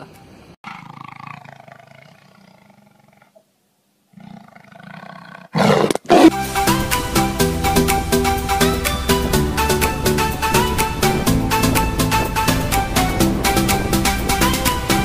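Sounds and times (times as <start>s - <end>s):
tiger roaring: 0.6s - 3.4s, 4.1s - 6.4s
loud electronic music: 6.3s - 15.0s.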